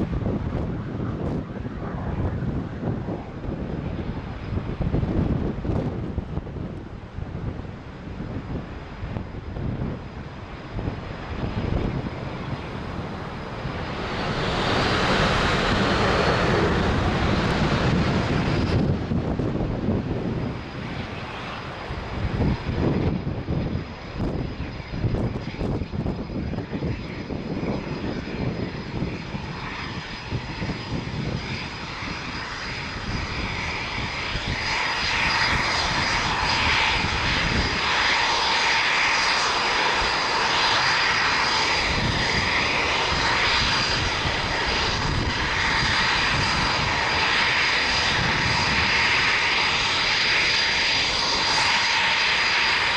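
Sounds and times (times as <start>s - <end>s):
high jet whine: 0.0s - 52.9s
jet engines roaring: 0.0s - 52.9s.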